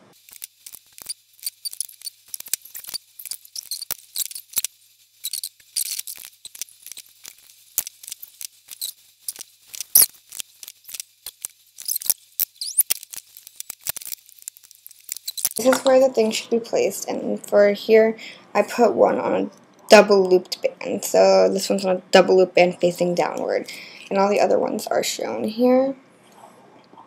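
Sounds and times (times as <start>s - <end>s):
small plastic clicks and ticks: 0.2s - 15.9s.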